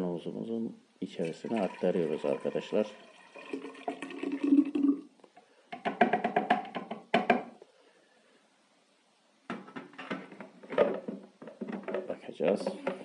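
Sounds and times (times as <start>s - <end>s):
juice pouring into glass jar: 1.2s - 5.1s.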